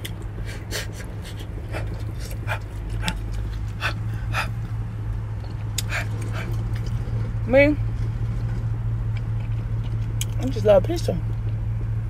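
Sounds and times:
mouth smacks chewing: 0:00.0 - 0:04.7, 0:05.4 - 0:07.0
steady low hum: 0:00.0 - 0:12.0.

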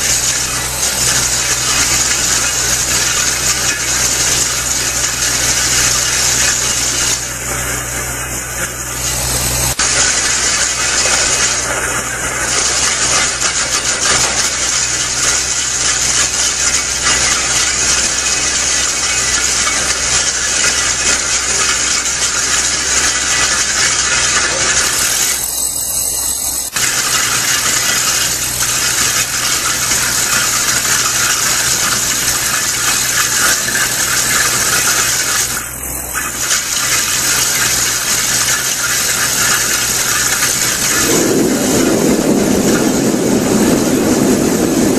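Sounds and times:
drum cutter grinding concrete: 0:00.0 - 0:44.9
excavator engine running: 0:00.0 - 0:44.9.

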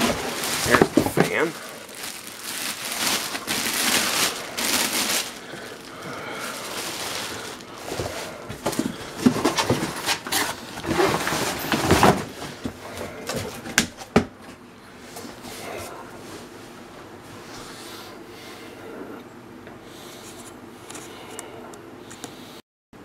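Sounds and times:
cardboard and packing rustling: 0:00.0 - 0:14.3.

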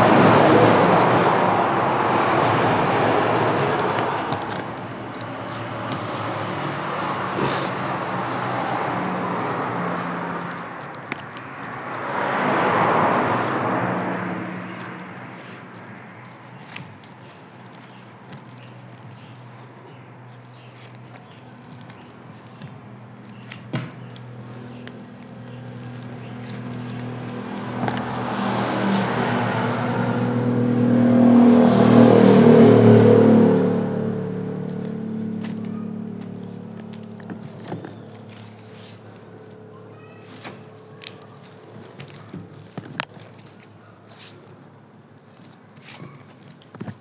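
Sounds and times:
car passing by: 0:00.0 - 0:10.8, 0:11.5 - 0:16.8, 0:26.0 - 0:37.1
vehicle approaching: 0:00.0 - 0:47.0
straw rustling and clicking: 0:00.1 - 0:33.0, 0:34.0 - 0:47.0.

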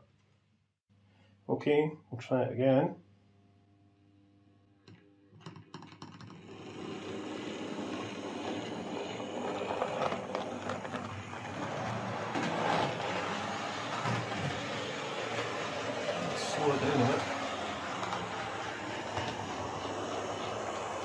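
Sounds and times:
model train motor whirring: 0:06.4 - 0:21.0.

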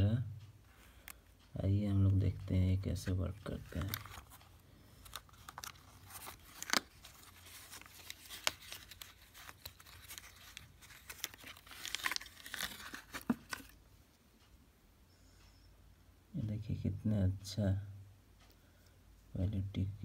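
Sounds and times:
blister pack tearing and crinkling: 0:05.0 - 0:13.8.

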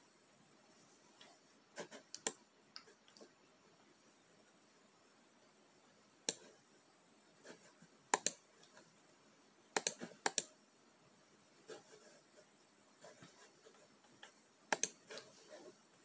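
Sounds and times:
computer key clicks: 0:08.2 - 0:08.4, 0:09.8 - 0:10.5, 0:14.7 - 0:15.0.

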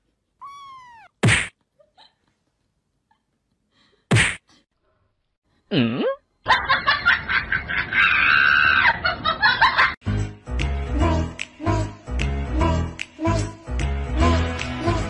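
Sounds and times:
sharp whack: 0:01.2 - 0:01.5, 0:04.1 - 0:04.4.

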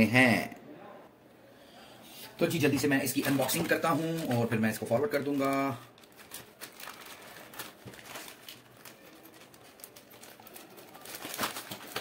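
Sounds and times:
plastic bag rustling: 0:02.6 - 0:12.0.

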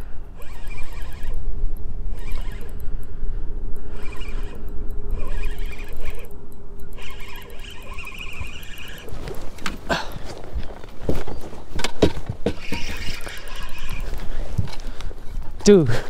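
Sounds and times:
fishing reel cranking: 0:00.0 - 0:10.1, 0:12.5 - 0:15.1.

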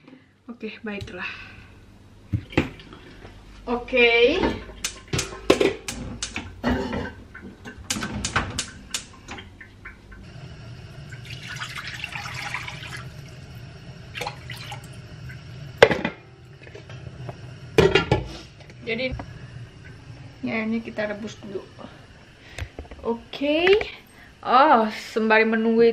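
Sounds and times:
pans clattering on stove: 0:04.5 - 0:08.7, 0:17.8 - 0:18.4
water pouring into wok: 0:10.2 - 0:15.8.

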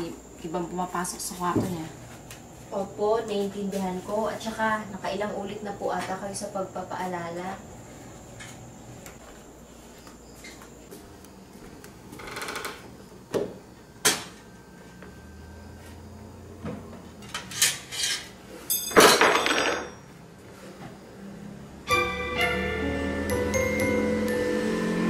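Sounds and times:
metal spoon clattering on wooden floor: 0:17.3 - 0:20.0.

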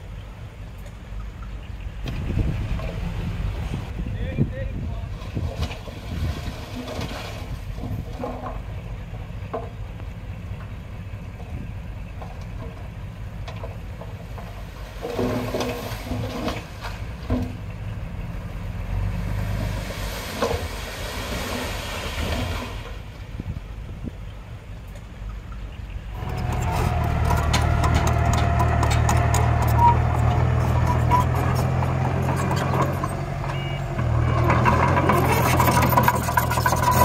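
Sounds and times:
earth-moving machine engine running: 0:26.0 - 0:37.0
machinery knocks and clanks: 0:26.2 - 0:37.0.

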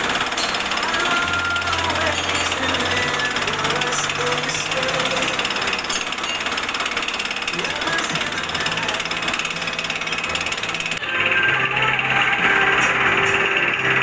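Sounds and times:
cutter chattering in metal: 0:00.0 - 0:11.0
milling machine spindle running: 0:00.0 - 0:14.0.

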